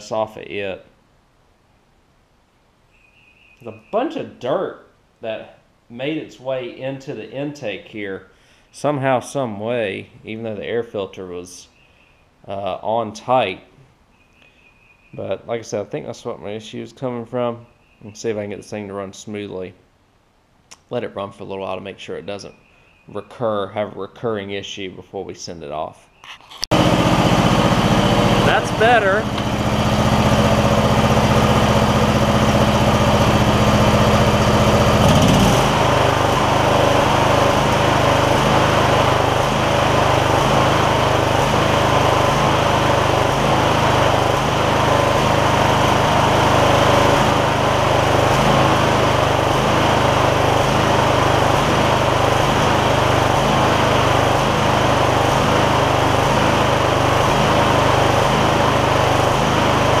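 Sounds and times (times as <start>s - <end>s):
lawn tractor engine running: 26.7s - 60.0s.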